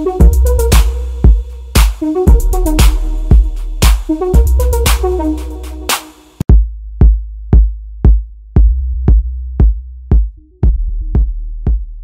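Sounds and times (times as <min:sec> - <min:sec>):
deep bass line: 0:00.0 - 0:12.0
drum machine kick: 0:00.0 - 0:12.0.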